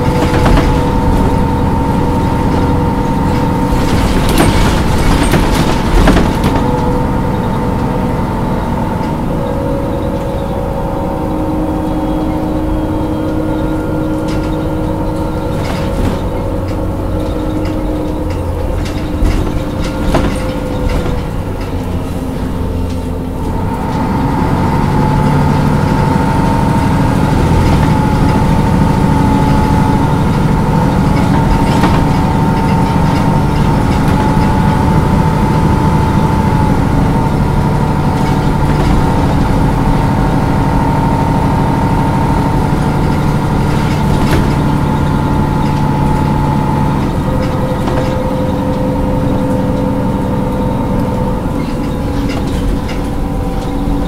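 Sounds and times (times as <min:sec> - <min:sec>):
diesel bus engine idling: 0:00.0 - 0:54.0
higher steady hum: 0:00.0 - 0:54.0.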